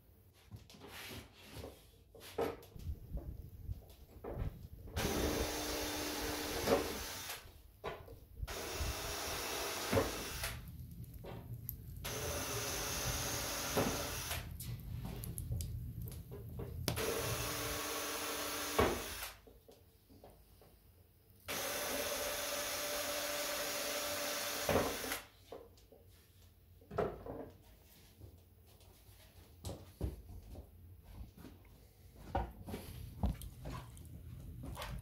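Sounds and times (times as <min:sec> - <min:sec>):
electric power tool bursts: 0:05.0 - 0:07.4, 0:08.5 - 0:10.6, 0:12.0 - 0:14.5, 0:17.0 - 0:19.4, 0:21.5 - 0:25.3.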